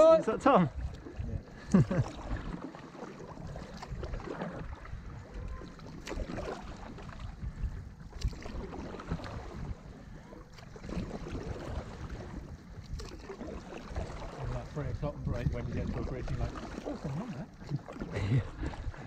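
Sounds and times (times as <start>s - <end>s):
paddles splashing in water: 0.0s - 19.0s.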